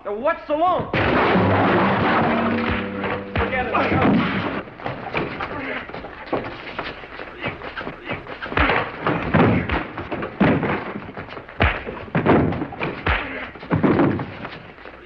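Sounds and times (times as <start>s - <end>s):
heavy punches: 1.3s - 5.8s, 7.4s - 14.6s
bodies and furniture thudding: 8.6s - 14.7s.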